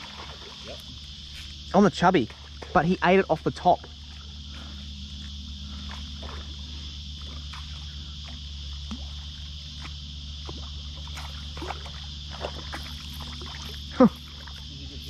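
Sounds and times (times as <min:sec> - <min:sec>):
cicadas chorus: 0:00.0 - 0:15.0.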